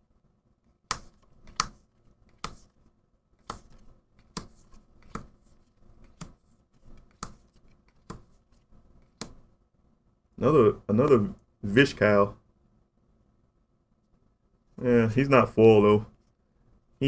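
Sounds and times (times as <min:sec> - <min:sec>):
cards sliding: 0:00.9 - 0:02.8, 0:03.4 - 0:09.4.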